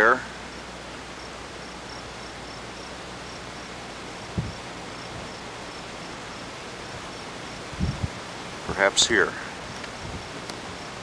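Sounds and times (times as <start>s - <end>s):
open-air background hiss: 0.0s - 11.0s
low thump: 4.4s - 4.6s.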